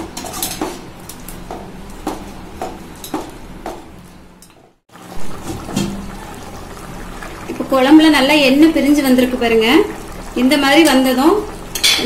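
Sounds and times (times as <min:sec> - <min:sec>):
gravy bubbling: 0:04.9 - 0:12.0.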